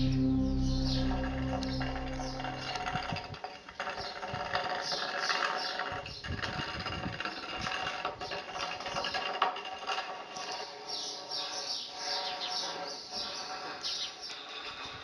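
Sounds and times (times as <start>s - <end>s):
ambient noise: 0.0s - 3.3s.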